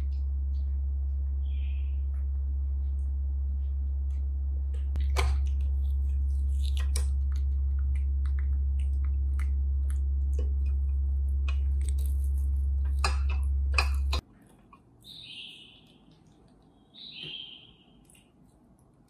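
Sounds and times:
steady low hum: 0:00.0 - 0:19.0
monkey chewing: 0:04.9 - 0:17.0.

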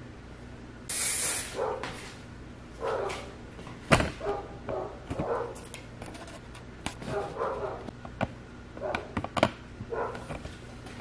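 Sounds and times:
brief hiss: 0:00.9 - 0:01.6
dog barking: 0:01.6 - 0:02.0, 0:02.8 - 0:03.3, 0:04.2 - 0:05.6, 0:07.1 - 0:07.9, 0:08.8 - 0:09.1, 0:09.9 - 0:10.2.

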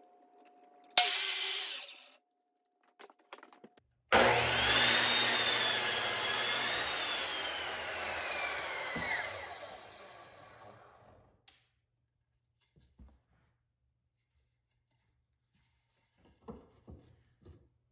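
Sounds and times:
miter saw motor whine: 0:04.2 - 0:10.9.

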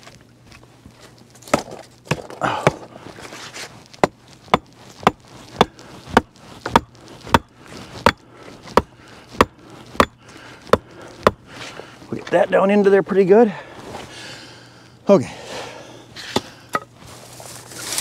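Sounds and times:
stick knocking into clay: 0:04.0 - 0:11.4
rustling and splashing: 0:17.0 - 0:18.0.

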